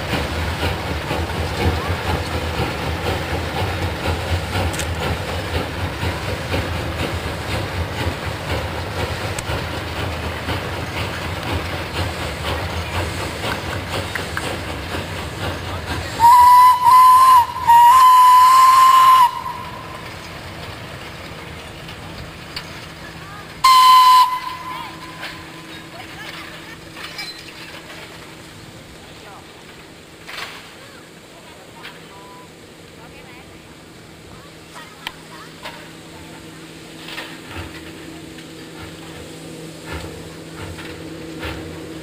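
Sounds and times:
steam locomotive exhaust beat: 0.0s - 42.0s
steam whistle blasts: 16.2s - 20.1s, 23.6s - 25.5s.

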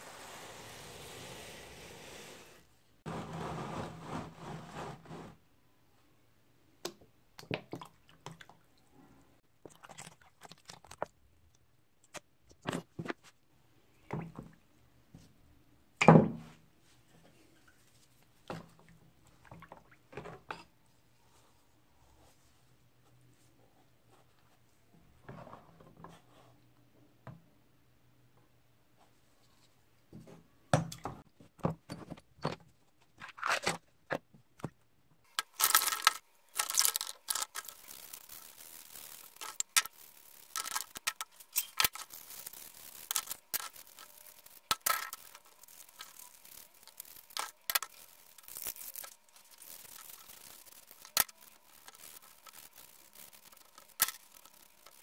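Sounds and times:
irregular scraping strokes: 0.0s - 5.4s.

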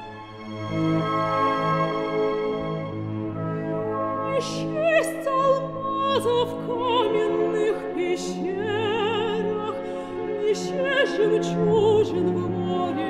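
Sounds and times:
orchestral accompaniment: 0.0s - 9.8s
operatic voice singing: 4.3s - 13.0s.

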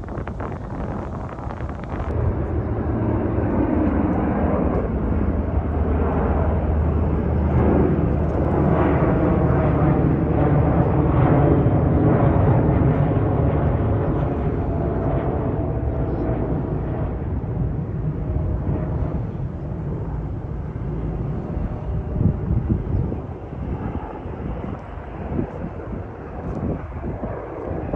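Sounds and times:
jet engines passing overhead: 0.0s - 27.9s.

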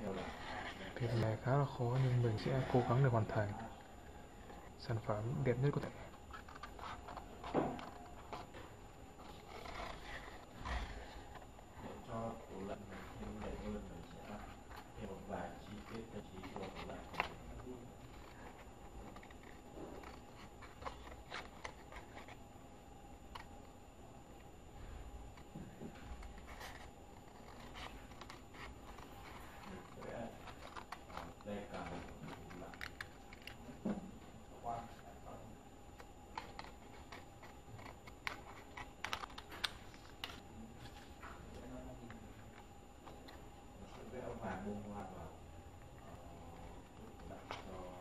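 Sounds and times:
scissors cutting paper: 5.4s - 22.4s, 25.3s - 33.9s, 35.3s - 40.5s.

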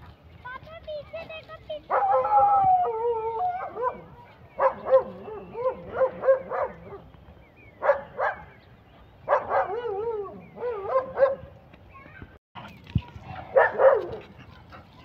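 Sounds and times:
dog barking: 1.9s - 2.4s, 3.6s - 7.0s, 7.8s - 8.5s, 9.3s - 11.5s, 13.3s - 14.3s.

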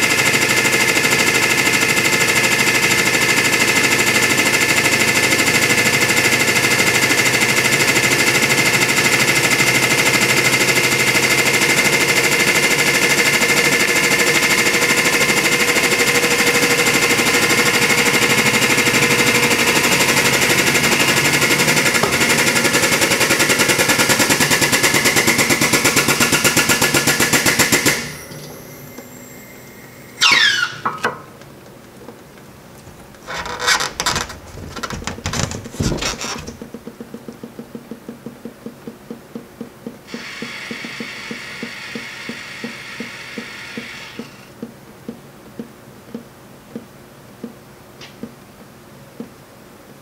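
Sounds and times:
hydraulic pump pulsing: 0.0s - 29.1s, 40.1s - 44.5s.

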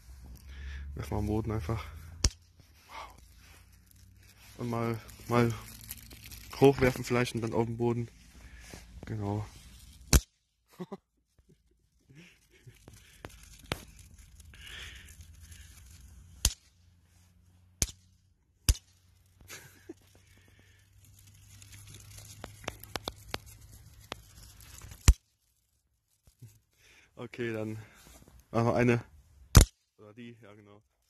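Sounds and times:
snap bangs cracking on asphalt: 10.1s - 10.3s, 16.4s - 16.7s, 17.8s - 19.0s, 29.5s - 29.8s.

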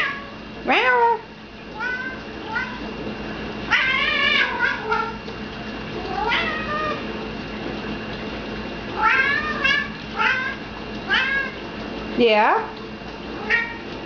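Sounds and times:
cat meowing: 3.7s - 5.2s, 6.1s - 7.0s, 9.0s - 11.6s.

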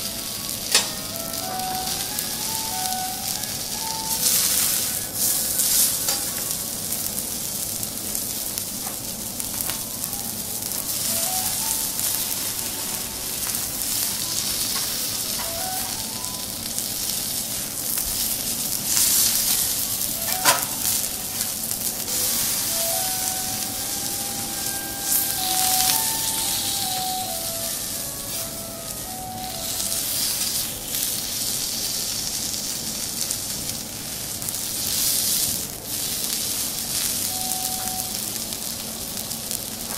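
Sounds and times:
steak sizzling on a griddle: 0.0s - 39.9s.

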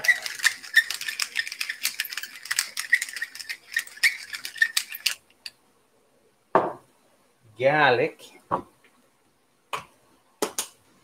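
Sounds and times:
pepper shaker rattling: 0.0s - 5.5s.

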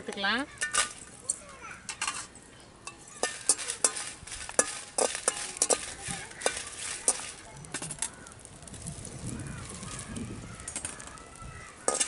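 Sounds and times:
spoon scraping a steel pan: 0.6s - 2.3s, 2.9s - 7.9s.

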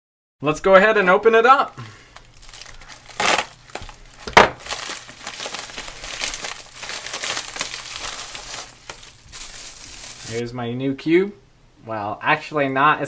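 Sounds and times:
plastic wrapping crinkling: 2.0s - 10.4s
padded mailer ripping open: 2.2s - 10.4s.

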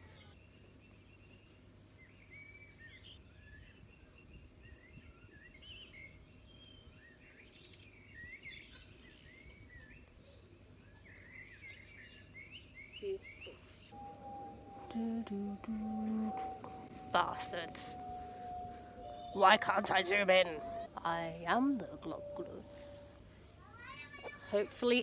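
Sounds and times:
birds chirping and whistling: 11.0s - 23.3s.

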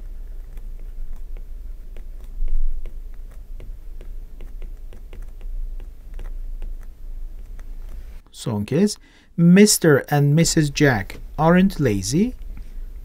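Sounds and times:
stylus tapping and scratching: 0.0s - 8.3s
low steady hum: 0.0s - 13.0s.

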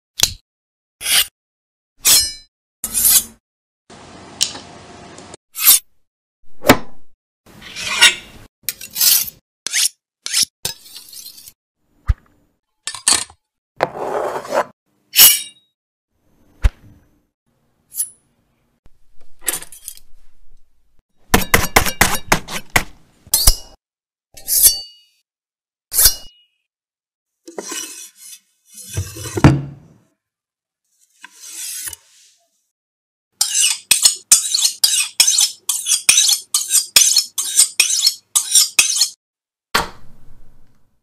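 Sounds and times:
knife scraping on sharpener: 1.0s - 1.3s, 2.0s - 3.4s, 5.6s - 5.9s, 7.6s - 11.6s, 24.4s - 25.0s, 25.9s - 26.4s, 27.5s - 29.4s, 31.2s - 32.2s, 33.4s - 39.2s
knife cutting cardboard: 13.8s - 14.7s.

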